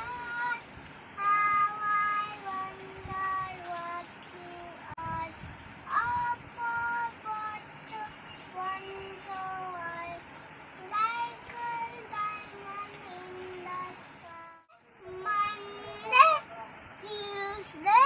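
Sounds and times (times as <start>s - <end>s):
child singing: 0.0s - 18.0s.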